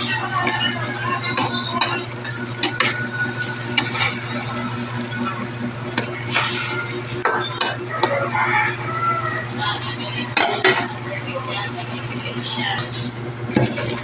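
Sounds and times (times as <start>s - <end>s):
steady low hum: 0.0s - 14.0s
spatula scraping a wok: 6.2s - 8.2s.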